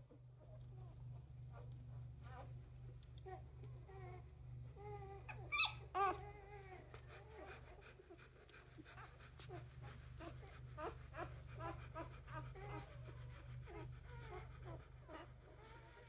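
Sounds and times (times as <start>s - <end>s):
dog whining: 3.3s - 16.0s
dog yelping: 5.2s - 8.0s.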